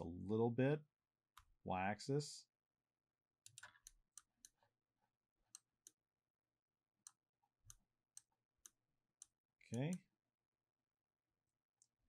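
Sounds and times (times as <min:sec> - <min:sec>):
mouse and keyboard clicks: 0:03.5 - 0:04.6.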